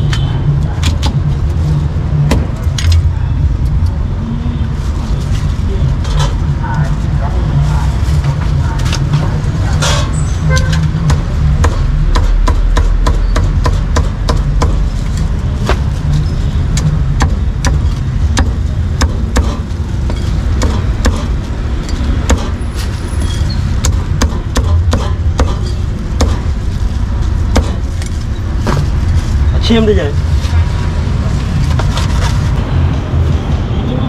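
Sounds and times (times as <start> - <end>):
street traffic rumble: 0.0 - 34.0
cleaver chopping on wooden block: 22.3 - 22.5.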